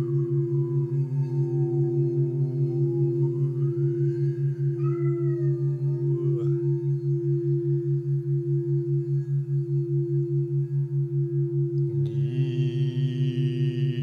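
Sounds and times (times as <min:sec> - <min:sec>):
man chanting a long tone: 0:00.0 - 0:07.2, 0:11.8 - 0:14.0
low pulsing tone: 0:00.0 - 0:14.0
steady higher drone: 0:00.0 - 0:14.0.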